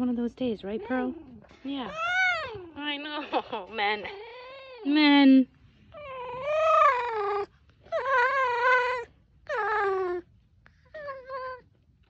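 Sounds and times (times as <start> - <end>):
fox whining: 0.8 - 3.0, 5.9 - 11.8.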